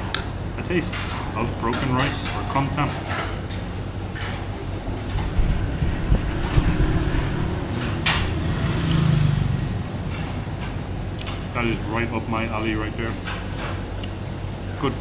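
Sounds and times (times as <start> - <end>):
road traffic rumble: 0.0 - 15.0
vehicle passing: 5.3 - 11.2.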